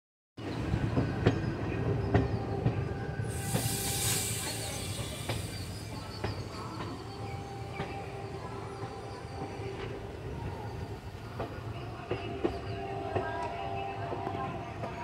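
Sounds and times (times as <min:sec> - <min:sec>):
train rumble: 0:00.4 - 0:15.0
train wheels clacking: 0:00.9 - 0:10.0
burst of hiss: 0:03.3 - 0:06.0.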